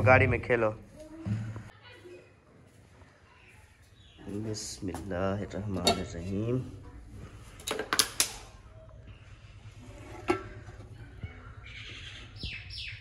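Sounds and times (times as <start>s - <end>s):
birds chirping faintly: 1.7s - 7.1s, 10.5s - 13.0s.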